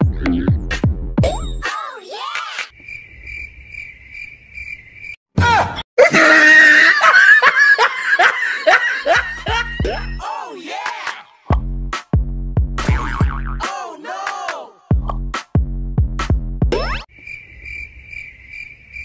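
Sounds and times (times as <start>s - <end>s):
music: 0.0s - 1.7s, 9.4s - 10.3s, 11.0s - 17.0s
shouting screaming vocals: 9.9s - 11.4s, 13.6s - 14.8s.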